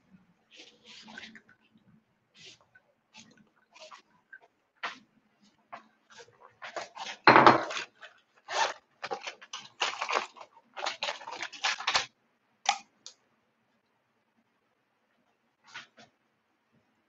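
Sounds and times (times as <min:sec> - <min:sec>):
household objects clattering and crinkling: 0:02.4 - 0:12.8.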